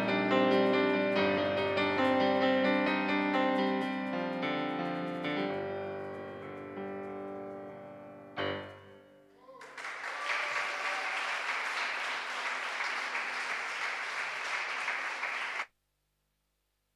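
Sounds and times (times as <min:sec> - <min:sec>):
audience applause: 0:09.5 - 0:15.7.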